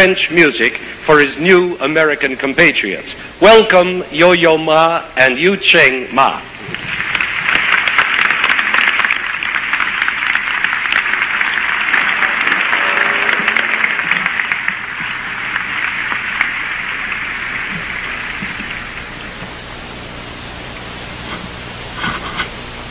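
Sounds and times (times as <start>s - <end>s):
old recording hiss: 0.0s - 22.9s
audience applauding: 6.6s - 19.7s.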